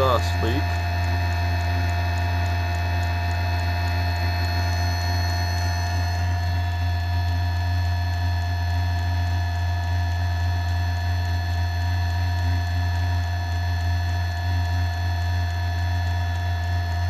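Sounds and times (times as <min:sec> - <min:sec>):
steady whining tones: 0:00.0 - 0:08.5
furnace blower low hum: 0:00.0 - 0:17.0.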